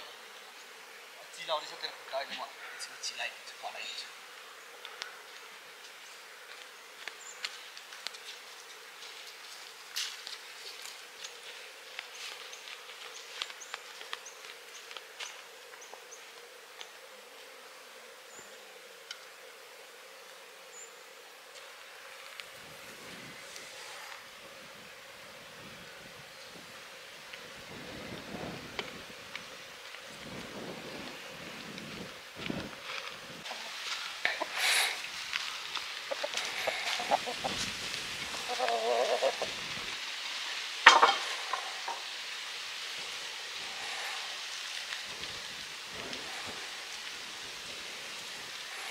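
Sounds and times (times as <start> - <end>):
insects buzzing: 0.0 - 48.9
chicken clucking: 36.1 - 37.6, 38.4 - 39.6.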